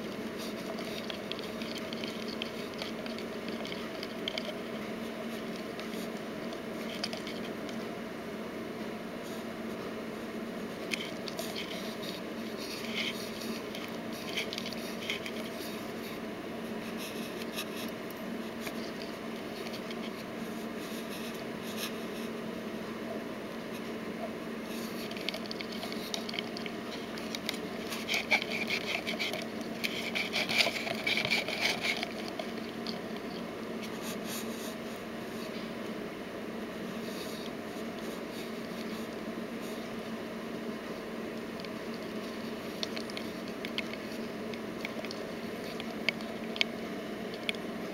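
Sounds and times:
faint scratching and clicking: 0.0s - 8.0s, 9.2s - 22.4s, 23.6s - 36.0s, 36.8s - 47.9s
steady low hum: 0.0s - 47.9s.

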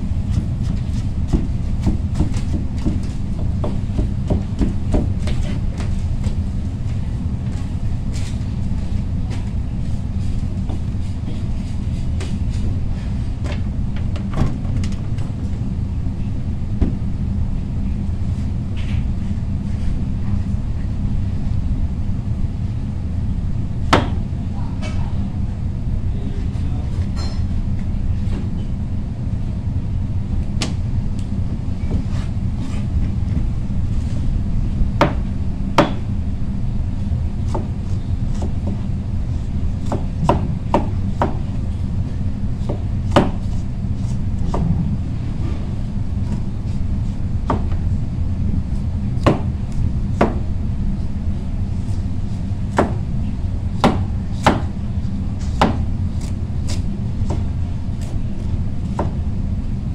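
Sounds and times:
steady low hum: 0.0s - 59.9s.

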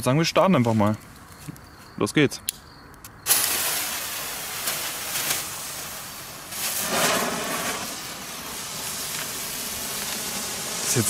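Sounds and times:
flare hissing: 3.2s - 11.0s.

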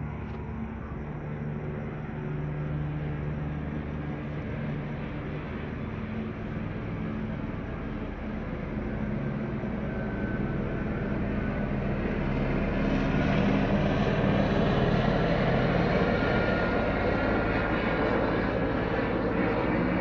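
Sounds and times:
helicopter flying overhead: 0.0s - 20.0s.

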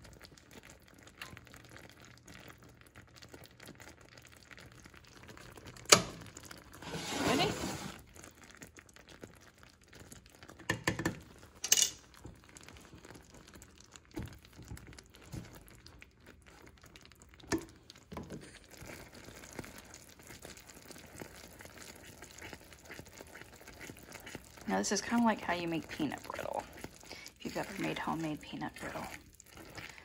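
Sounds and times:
faint bubbling: 0.0s - 30.0s
utensil scraping saucepan: 6.7s - 8.0s.

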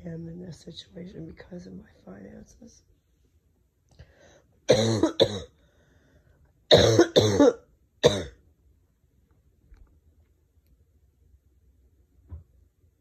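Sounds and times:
person coughing harshly: 4.7s - 5.6s, 6.7s - 8.4s.

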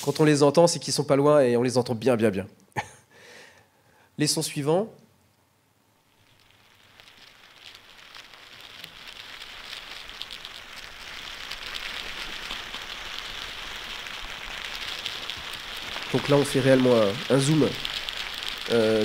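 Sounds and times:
fine crackling of tiny clicks: 6.0s - 19.0s.

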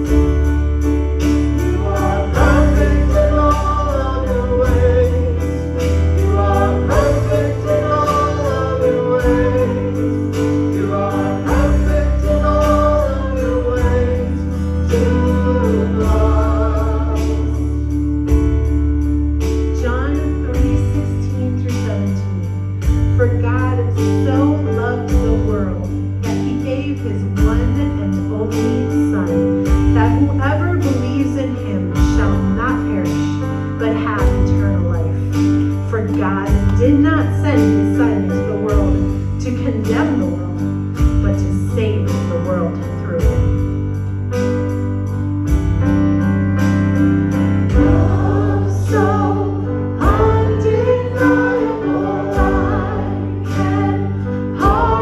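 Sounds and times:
deep bass notes: 0.0s - 55.0s
person singing melody: 1.5s - 18.0s, 47.7s - 55.0s
sustained chords: 45.8s - 55.0s
high percussion ticking: 47.0s - 55.0s.

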